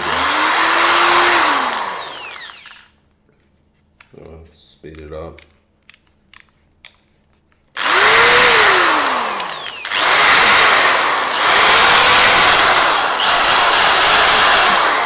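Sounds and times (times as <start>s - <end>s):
hammer drill motor whine: 0.0s - 2.9s, 7.8s - 15.0s.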